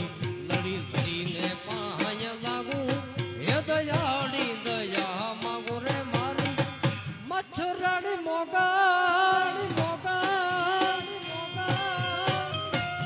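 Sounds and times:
drum strokes: 0:00.0 - 0:07.8
harmonium and keyboard: 0:00.0 - 0:13.0
man singing long held notes: 0:00.0 - 0:13.0.

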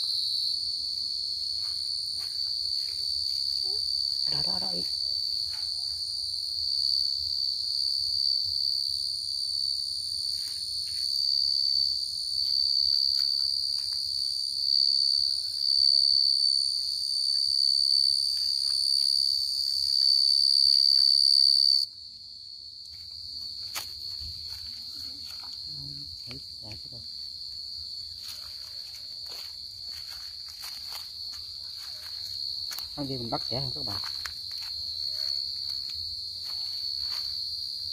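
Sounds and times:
cricket high-pitched trill: 0:00.0 - 0:37.9
rustles and clicks in leaf litter: 0:12.4 - 0:14.4.

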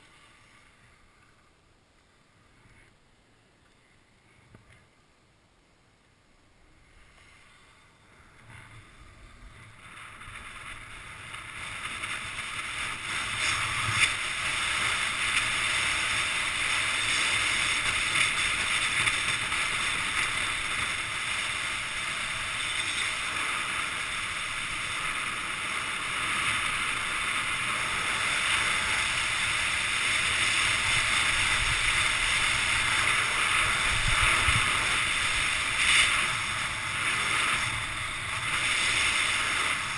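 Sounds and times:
skis sliding over snow: 0:00.0 - 0:01.5, 0:06.7 - 0:39.9
wind on microphone: 0:08.4 - 0:39.9.

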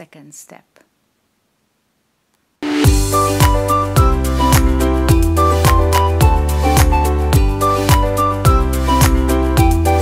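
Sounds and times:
music with steady drum beat: 0:02.6 - 0:10.0.

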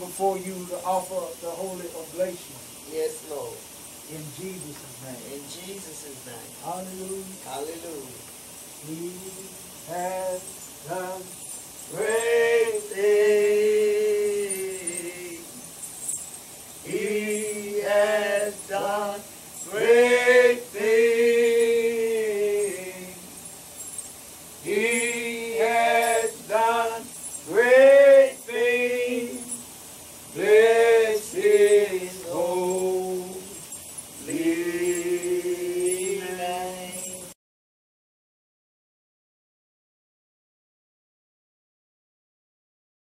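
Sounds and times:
man chanting: 0:00.0 - 0:08.2, 0:08.8 - 0:15.6, 0:16.9 - 0:23.3, 0:24.6 - 0:29.6, 0:30.4 - 0:33.6, 0:34.3 - 0:37.4.

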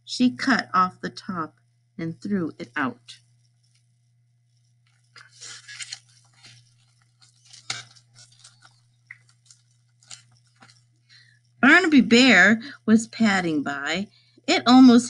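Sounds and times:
paper rustling: 0:05.2 - 0:10.8.

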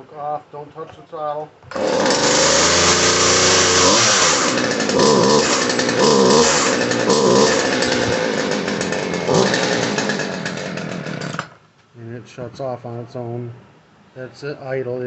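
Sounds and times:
chainsaw engine revving: 0:01.7 - 0:11.6.

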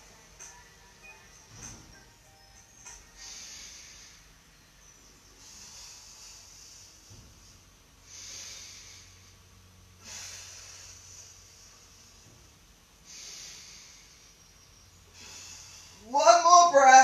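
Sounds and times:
person breathing hard: 0:03.0 - 0:04.5, 0:05.3 - 0:16.1.

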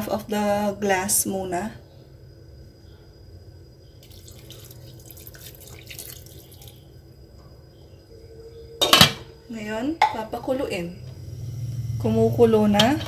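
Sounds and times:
water pouring into a pot: 0:04.0 - 0:06.9.

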